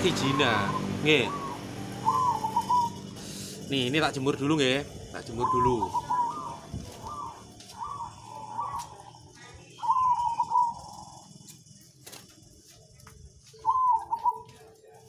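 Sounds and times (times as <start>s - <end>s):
dove cooing: 0.4s - 3.2s, 5.2s - 12.2s, 13.5s - 15.0s.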